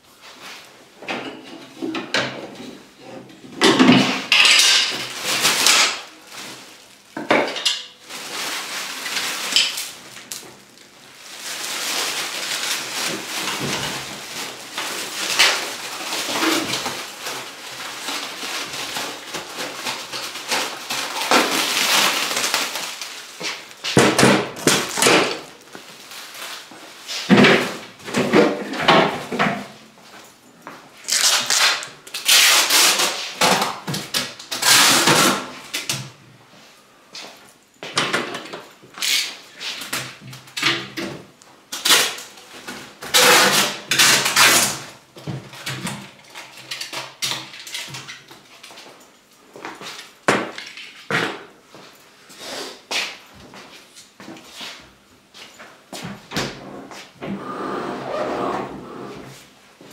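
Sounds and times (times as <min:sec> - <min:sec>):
plastic film rustling and crinkling: 0:04.1 - 0:29.3, 0:30.9 - 0:36.2, 0:38.6 - 0:51.0
stretch film being pulled: 0:31.1 - 0:33.3.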